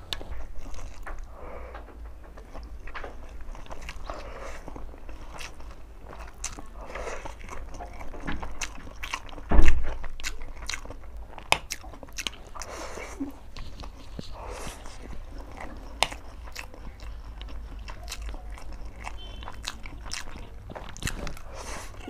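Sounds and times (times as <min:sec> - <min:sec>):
slurping and chewing noodles: 0:00.0 - 0:22.0
loud low thump: 0:09.5 - 0:10.0
wet mouth clicks and smacks: 0:13.5 - 0:22.0.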